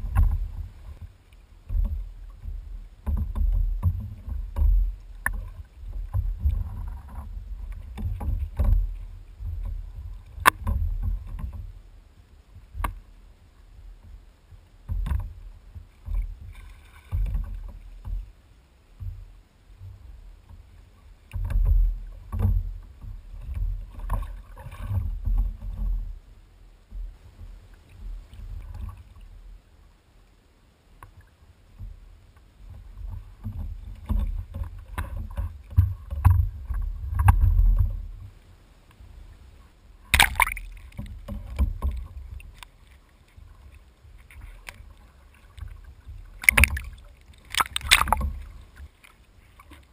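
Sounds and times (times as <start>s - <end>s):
water slapping against hull: 0.0s - 11.8s, 14.8s - 18.3s, 19.0s - 26.2s, 31.1s - 38.3s, 40.0s - 49.9s.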